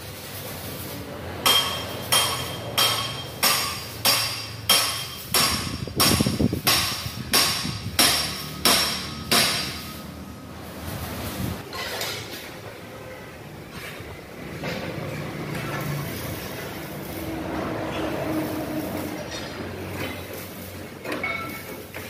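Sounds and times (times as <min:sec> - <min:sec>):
hammer striking metal: 0:01.4 - 0:10.1, 0:21.0 - 0:21.9.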